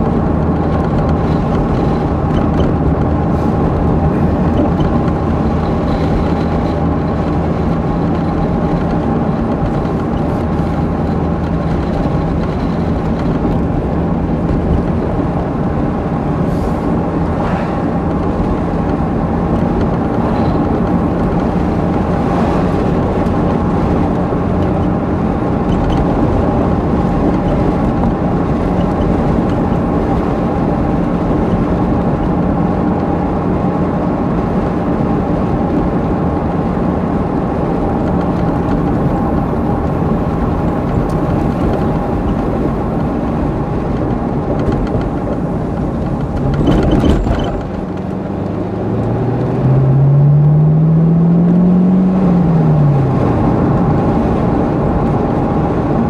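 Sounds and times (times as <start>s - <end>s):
car engine cruising: 0.0s - 56.0s
road noise: 0.0s - 56.0s.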